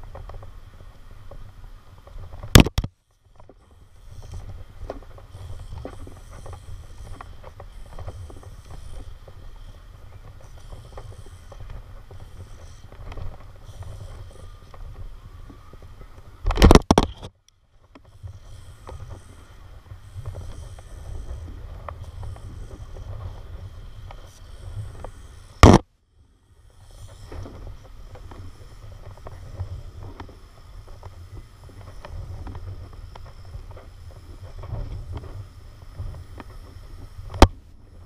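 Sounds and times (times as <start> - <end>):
rope and carabiner clicks: 2.0 - 3.5, 15.8 - 19.1
wind buffeting microphone: 3.4 - 17.2.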